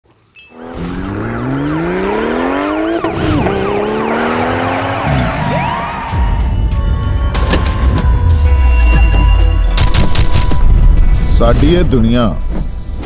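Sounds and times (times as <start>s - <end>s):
rising synth sweep: 0.6s - 6.9s
siren-like whoops: 1.1s - 7.5s.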